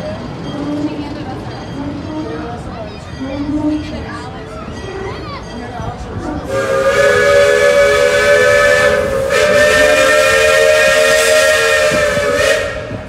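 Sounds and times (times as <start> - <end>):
steam locomotive chime whistle: 4.8 - 13.0.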